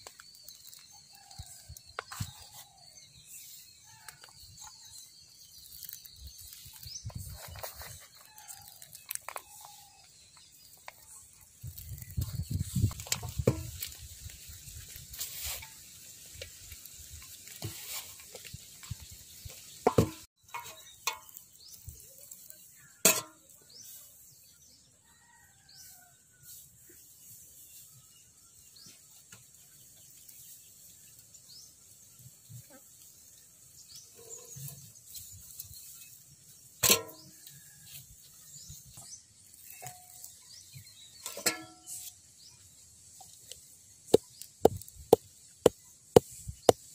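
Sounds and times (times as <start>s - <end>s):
grain rustling: 13.6s - 18.8s.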